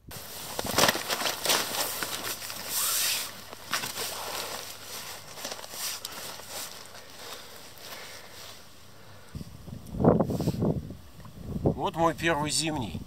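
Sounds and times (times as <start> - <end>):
wet net mesh rustling and sloshing: 0.2 - 8.1.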